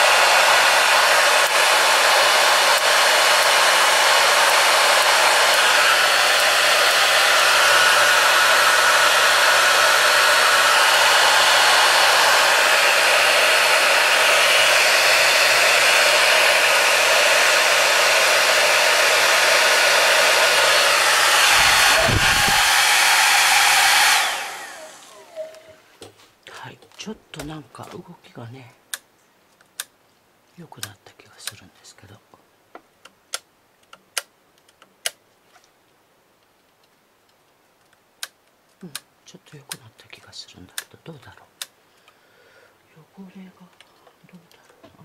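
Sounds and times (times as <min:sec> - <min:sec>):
hair dryer running: 0:00.0 - 0:25.8.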